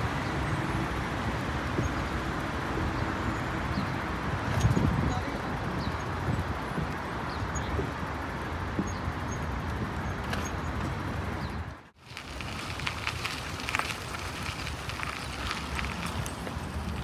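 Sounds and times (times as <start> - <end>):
distant traffic rumble: 0.0 - 17.0
wind on microphone: 3.7 - 8.0.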